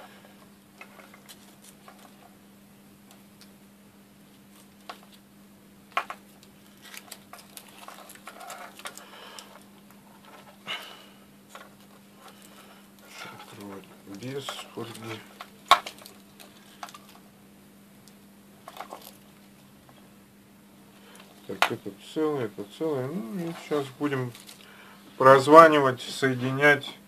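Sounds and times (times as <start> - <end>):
steady low hum: 0.0 - 27.0
rustling: 0.8 - 2.4, 6.0 - 17.2, 18.6 - 20.1, 22.9 - 25.2.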